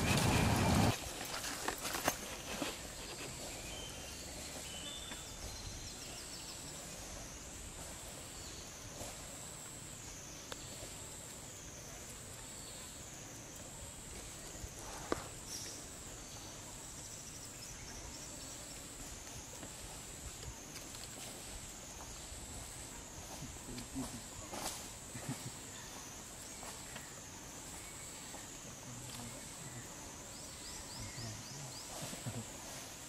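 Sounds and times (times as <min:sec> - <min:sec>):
insect chorus buzzing: 0:00.0 - 0:33.0.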